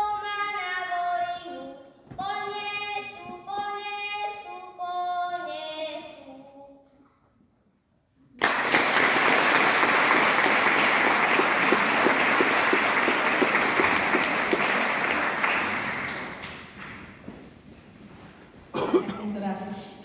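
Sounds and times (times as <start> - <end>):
audience applause: 8.4 - 17.2.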